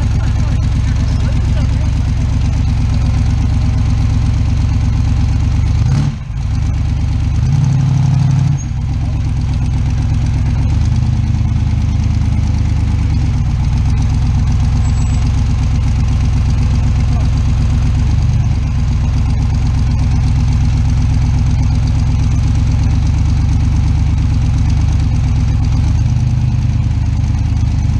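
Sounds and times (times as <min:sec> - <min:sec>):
buggy engine revving under load: 0:00.0 - 0:11.4.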